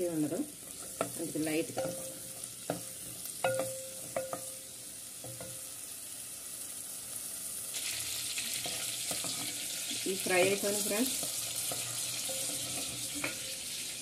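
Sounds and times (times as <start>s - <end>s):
chillies sizzling in hot oil: 0.0s - 14.0s
wooden spoon knocking pot: 2.7s - 4.6s.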